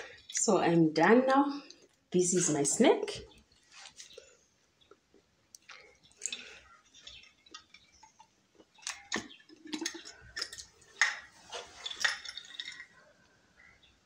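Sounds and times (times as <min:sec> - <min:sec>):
nuts shifting inside jar: 0:06.2 - 0:13.0.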